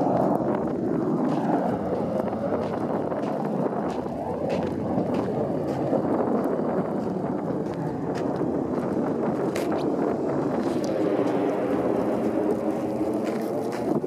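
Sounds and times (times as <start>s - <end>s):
car engine and tyres in snow: 0.0s - 14.0s
wind buffeting microphone: 0.0s - 14.0s
faint snow crunches: 7.0s - 14.0s.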